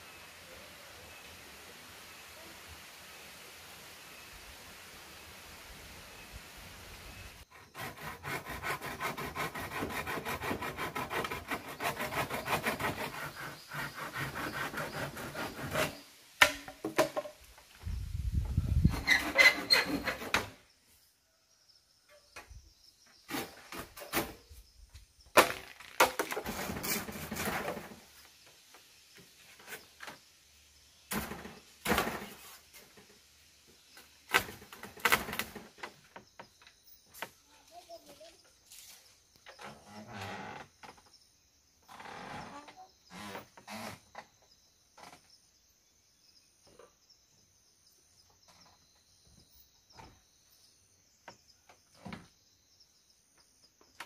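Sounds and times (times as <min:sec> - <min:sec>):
bamboo creaking: 0:07.5 - 0:20.6, 0:25.3 - 0:28.2, 0:34.0 - 0:37.5, 0:38.7 - 0:41.2, 0:41.8 - 0:44.4, 0:45.0 - 0:45.3
bamboo floor knocking and rattling: 0:16.4 - 0:17.7, 0:25.3 - 0:28.1, 0:31.1 - 0:33.2, 0:34.3 - 0:37.3.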